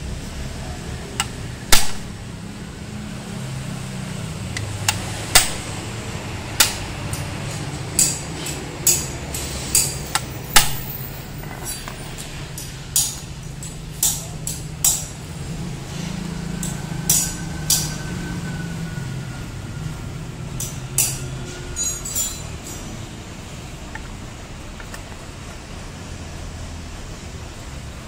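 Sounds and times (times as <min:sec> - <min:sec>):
metal parts clicking and clinking: 0:06.6 - 0:15.2, 0:20.6 - 0:23.1.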